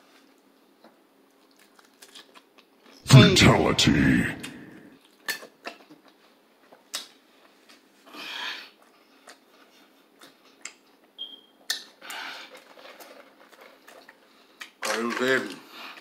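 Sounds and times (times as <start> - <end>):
chewing with wet mouth clicks: 5.0 - 7.2, 10.2 - 13.1.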